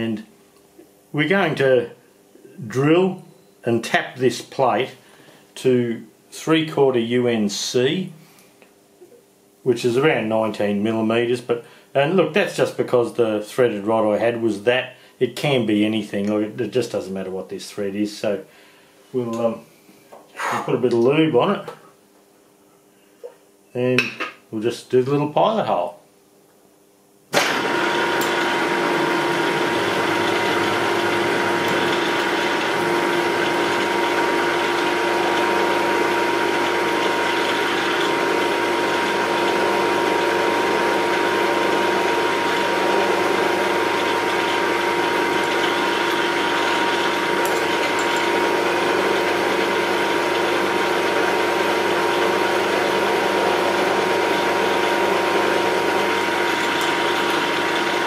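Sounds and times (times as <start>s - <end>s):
milling machine drilling metal: 27.4s - 58.0s.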